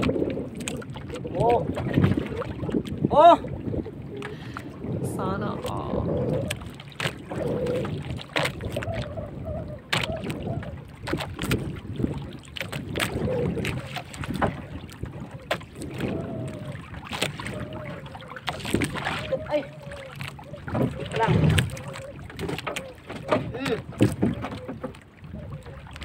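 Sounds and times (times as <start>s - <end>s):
water slapping boat hull: 0.0s - 26.0s
wind on microphone: 0.0s - 26.0s
sharp knocks on wooden boat: 23.2s - 24.9s.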